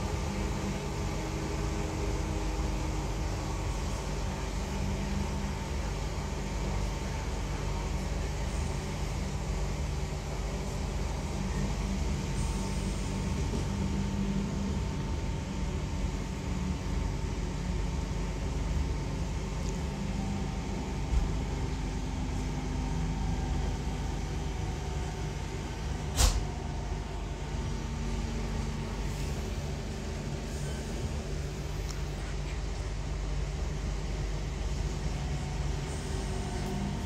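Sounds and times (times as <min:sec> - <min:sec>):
faint steady whine: 0:00.0 - 0:37.0
train cabin low rumble: 0:00.0 - 0:37.0
small click: 0:26.2 - 0:26.4.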